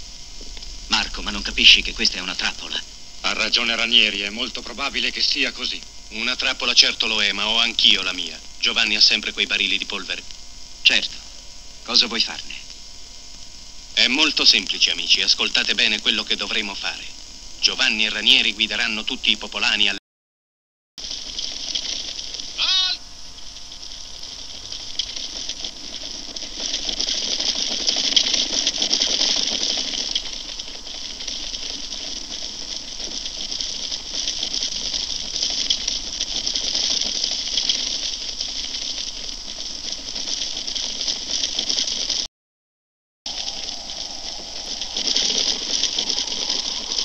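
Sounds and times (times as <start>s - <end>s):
old film soundtrack hiss: 0.0s - 20.0s, 21.0s - 42.3s, 43.3s - 47.0s
many horses hooves clattering: 23.7s - 42.3s, 43.3s - 47.0s.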